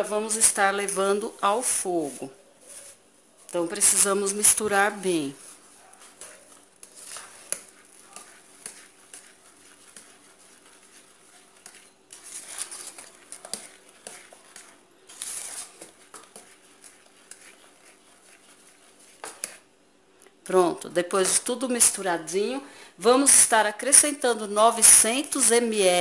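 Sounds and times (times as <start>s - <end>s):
whisk scraping metal pot: 0.0s - 19.7s.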